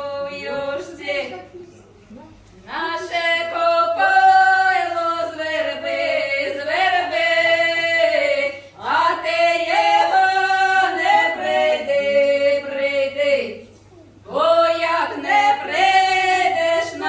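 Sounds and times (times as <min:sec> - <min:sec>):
women singing unaccompanied: 0:00.0 - 0:01.6, 0:02.6 - 0:17.0.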